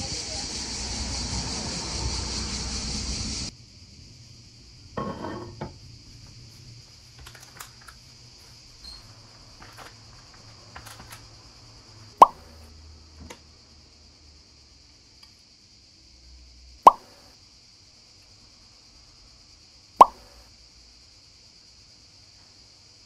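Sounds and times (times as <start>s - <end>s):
insect chirring: 0.0s - 5.0s, 5.8s - 23.0s
street traffic noise: 0.0s - 14.9s
plastic rustling: 6.9s - 11.2s
sharp clack: 16.9s - 17.2s.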